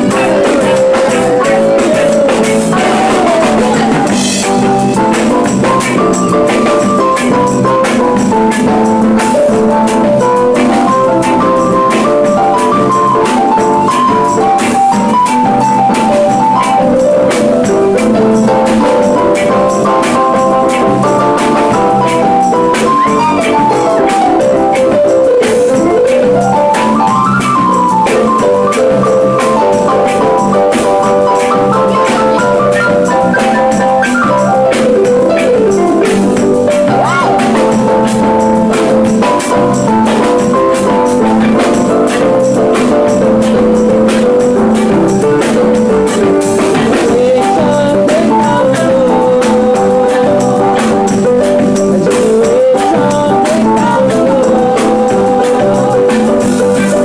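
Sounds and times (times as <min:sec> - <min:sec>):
melody of short quick notes: 0:00.0 - 0:43.7
drum kit steady beat: 0:00.0 - 0:57.0.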